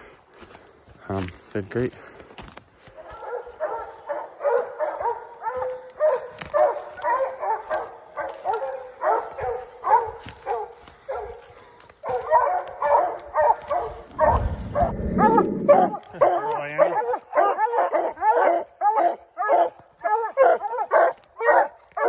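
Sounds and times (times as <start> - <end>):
hounds barking: 2.9 - 22.0
low rumble: 14.1 - 16.2.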